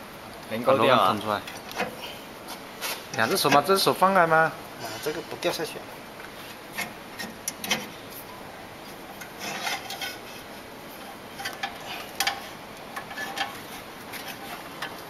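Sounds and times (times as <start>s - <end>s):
metal clicks knocks and scraping: 6.7s - 8.0s, 9.1s - 15.0s.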